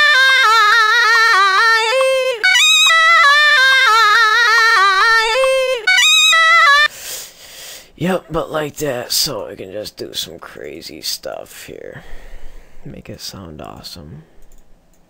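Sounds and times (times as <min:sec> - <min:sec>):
high sung vocal sample: 0:00.0 - 0:06.8.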